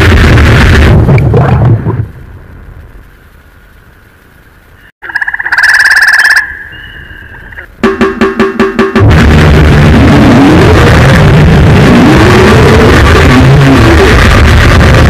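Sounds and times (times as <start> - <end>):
faint hum: 0.0 - 8.4
wall of distorted noise: 0.0 - 15.0
pulsing buzzy tone: 4.6 - 8.0.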